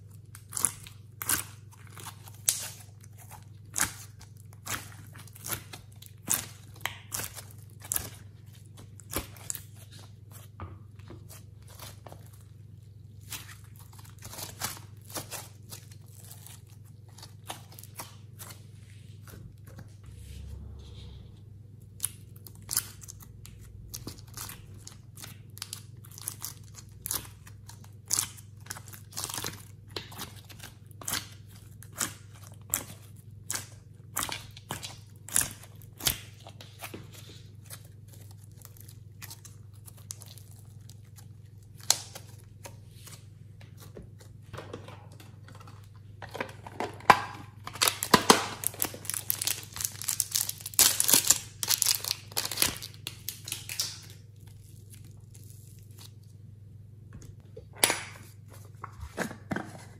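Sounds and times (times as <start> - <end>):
slime clicks and sticky crackles: 0.1 - 10.5, 21.9 - 42.8, 47.5 - 56.4
plastic wrapper crinkling and tearing: 11.2 - 19.3, 21.9 - 44.4, 47.1 - 56.4.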